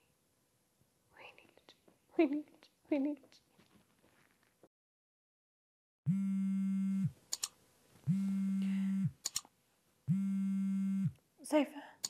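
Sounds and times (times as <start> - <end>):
mobile phone vibrating buzz: 6.1 - 7.2, 8.1 - 9.2, 10.1 - 11.2.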